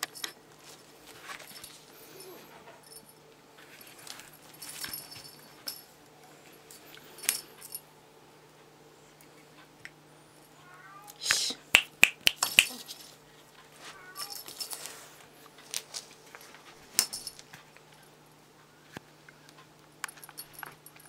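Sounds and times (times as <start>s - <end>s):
toy clinking and rattling: 0.0s - 0.4s, 3.8s - 5.9s, 7.2s - 7.8s, 12.4s - 13.2s, 14.2s - 15.0s, 15.7s - 17.6s, 20.1s - 21.0s.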